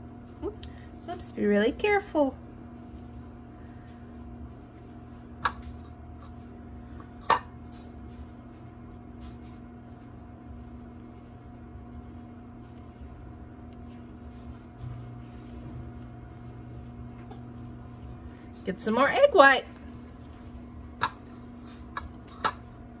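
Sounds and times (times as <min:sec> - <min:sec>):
soft dabbing and tapping: 0:16.8 - 0:18.0.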